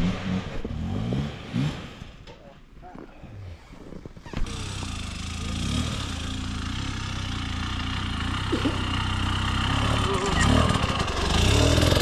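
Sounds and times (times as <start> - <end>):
dirt bike engine running: 4.4 - 12.0.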